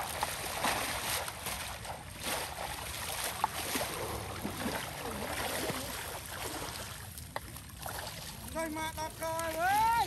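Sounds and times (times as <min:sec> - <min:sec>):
water sloshing and splashing: 0:00.0 - 0:10.0.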